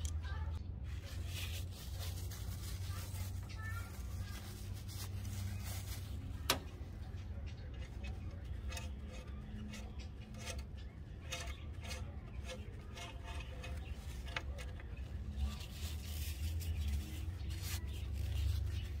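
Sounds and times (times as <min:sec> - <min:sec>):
metal dipstick scraping and clicking: 0:06.5 - 0:16.8.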